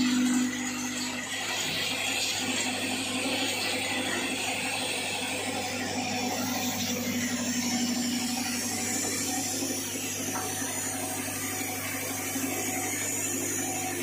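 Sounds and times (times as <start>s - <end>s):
steady electric hum: 0.0s - 1.6s, 5.3s - 14.0s.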